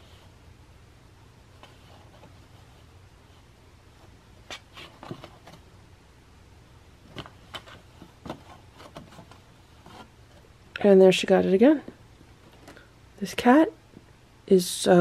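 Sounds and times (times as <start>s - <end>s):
cat pawing inside cardboard box: 4.4s - 5.7s, 7.1s - 10.4s.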